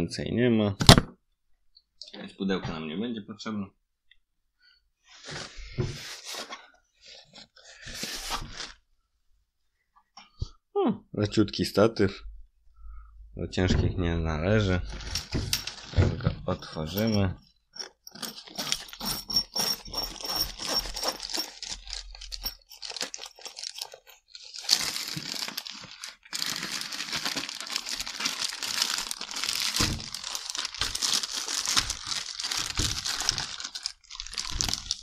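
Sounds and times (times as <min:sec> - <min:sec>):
plastic bag crinkling: 0:14.9 - 0:35.0.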